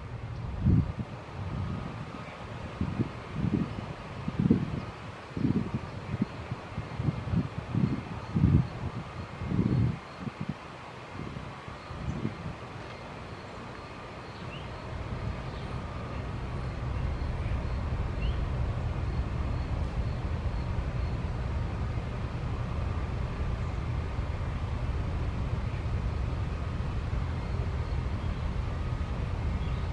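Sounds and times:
distant engine rumble: 11.9 - 29.9.

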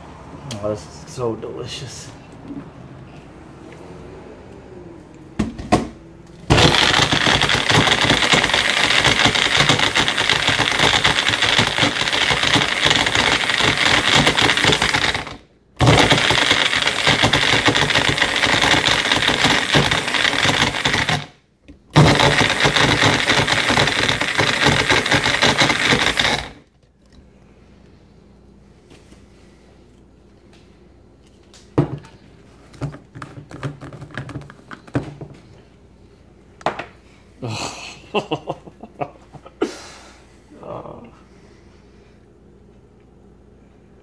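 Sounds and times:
blender whirring: 5.8 - 26.6.

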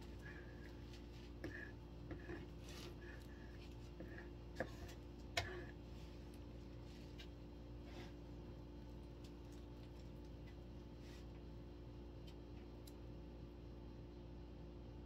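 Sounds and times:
stick stirring rubber: 0.0 - 8.4
steady low hum: 0.0 - 15.0.

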